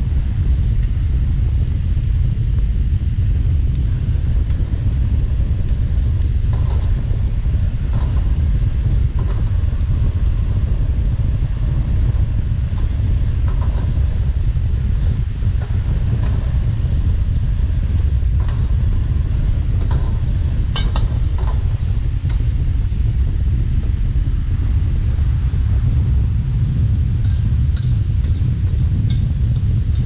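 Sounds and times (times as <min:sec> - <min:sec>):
gas burner rumbling: 0:00.0 - 0:30.0.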